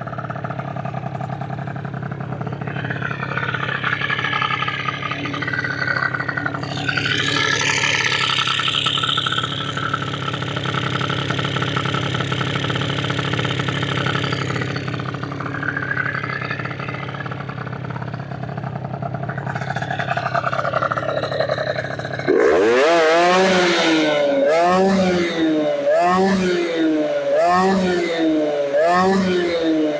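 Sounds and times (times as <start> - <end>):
scooter engine revving: 0.0 - 29.9.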